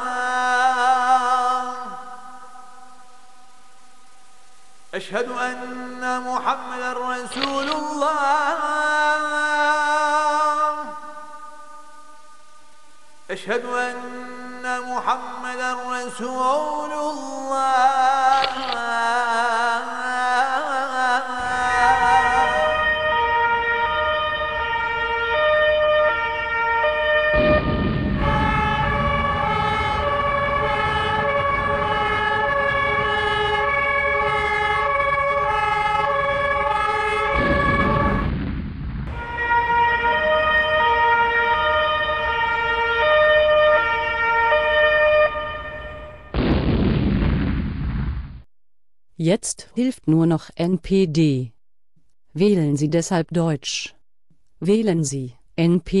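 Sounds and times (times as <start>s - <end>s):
call to prayer singing: 0.0s - 3.4s, 4.9s - 12.4s, 13.2s - 24.1s
two-tone emergency sirens: 21.4s - 38.4s, 39.1s - 46.4s
low rumbling noise: 27.4s - 33.1s, 37.3s - 39.5s.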